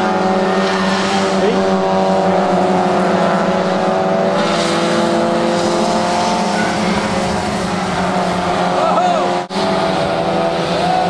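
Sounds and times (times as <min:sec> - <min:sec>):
race car engines droning: 0:00.0 - 0:11.0.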